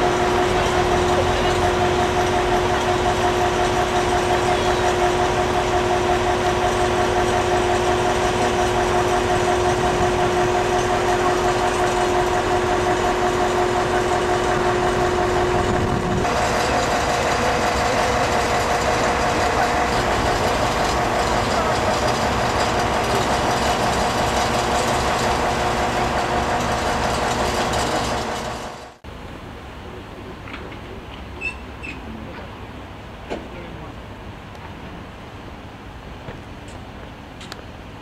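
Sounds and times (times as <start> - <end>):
crane diesel engine idling: 0.0 - 29.0.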